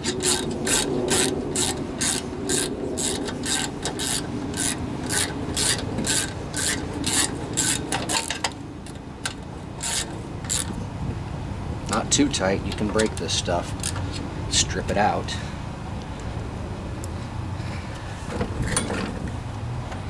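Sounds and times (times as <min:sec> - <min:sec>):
ratchet wrench clicking: 0:00.0 - 0:10.8.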